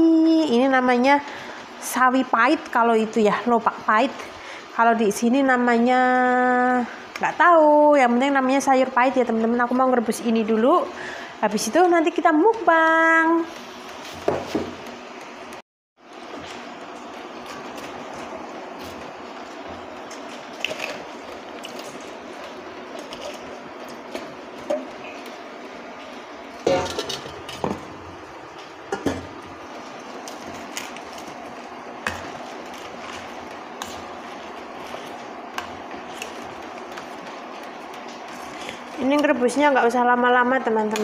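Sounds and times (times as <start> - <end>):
steady hum: 0.0 - 41.0.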